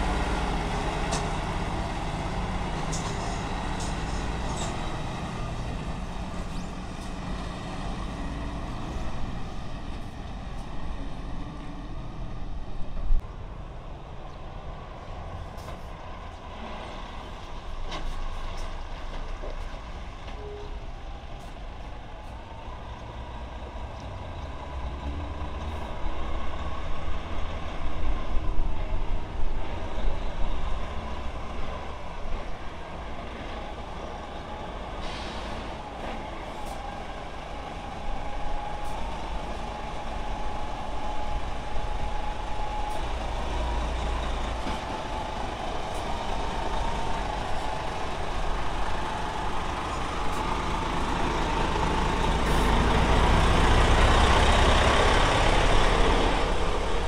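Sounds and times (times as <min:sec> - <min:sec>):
diesel truck engine rumbling: 0:00.0 - 0:57.0
air brakes hissing: 0:34.9 - 0:36.9.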